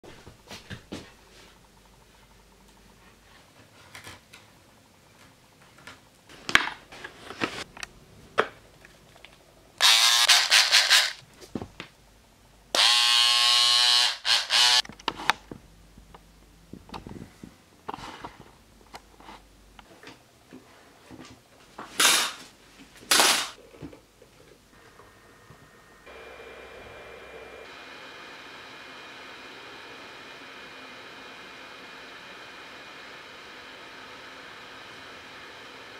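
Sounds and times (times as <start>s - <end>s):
small electric tool buzzing: 9.8s - 11.2s, 12.7s - 14.8s.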